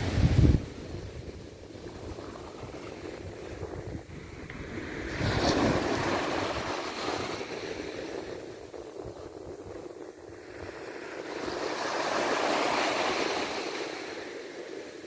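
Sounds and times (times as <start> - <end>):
small waves breaking on beach: 0.0 - 15.0.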